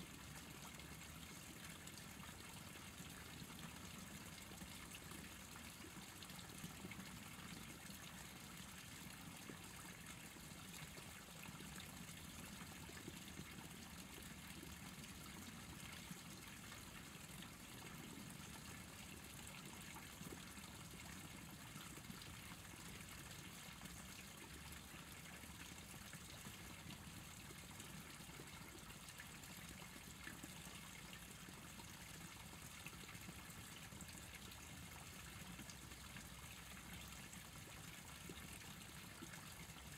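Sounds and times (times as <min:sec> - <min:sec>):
trickling stream water: 0:00.0 - 0:39.9.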